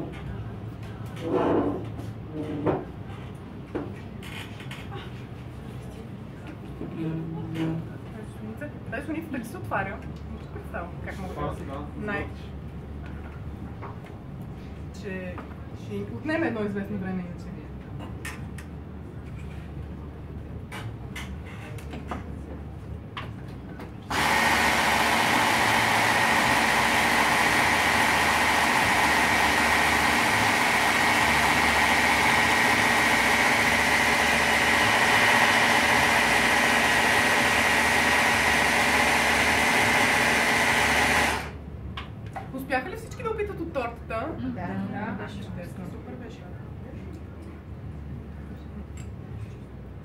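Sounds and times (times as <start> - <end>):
immersion blender whining: 24.1 - 41.6.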